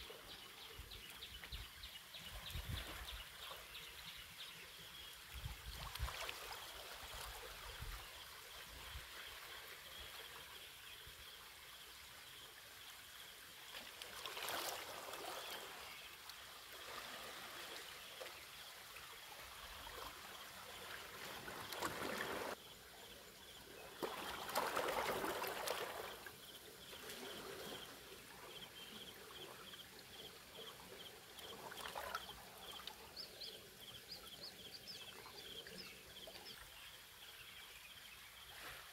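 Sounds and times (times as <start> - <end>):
small waves lapping on rocks: 13.7 - 22.6, 23.8 - 33.0.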